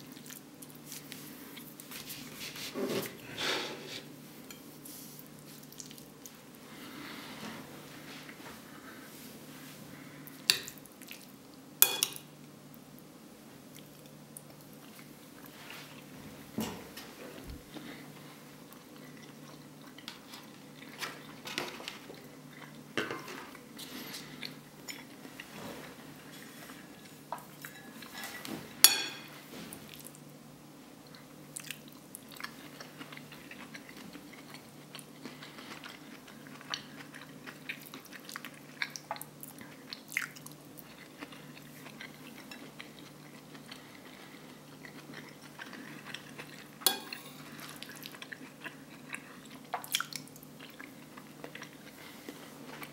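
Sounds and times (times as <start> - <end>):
close chewing: 31.1 - 52.9.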